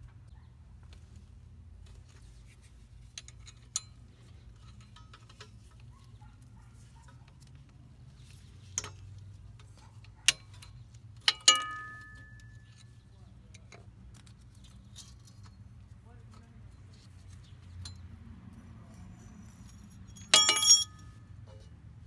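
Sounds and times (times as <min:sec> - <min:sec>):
ringing metal clink: 0:11.3 - 0:12.8, 0:18.9 - 0:21.2.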